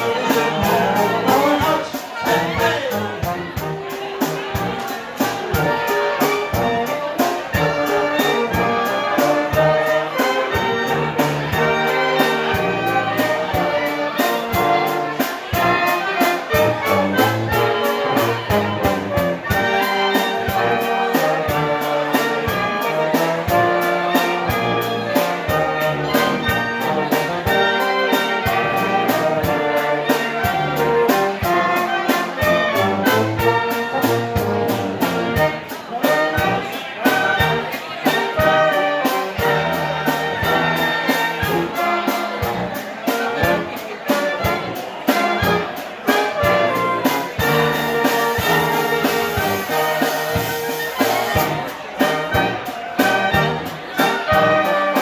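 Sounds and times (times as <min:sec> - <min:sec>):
drum kit beat: 0:00.0 - 0:55.0
trumpets and clarinet: 0:00.0 - 0:55.0
tuba bass: 0:00.0 - 0:55.0.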